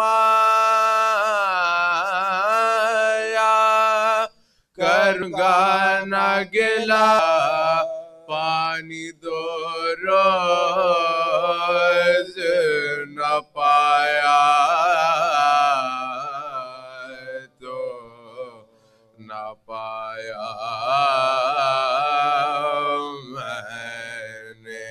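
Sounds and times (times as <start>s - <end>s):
man chanting melodically: 0.0s - 18.6s, 19.2s - 24.9s.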